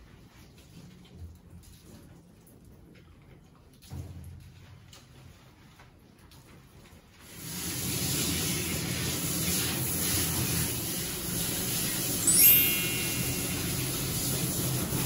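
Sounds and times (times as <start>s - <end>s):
shower sprayer hissing: 7.3s - 15.0s.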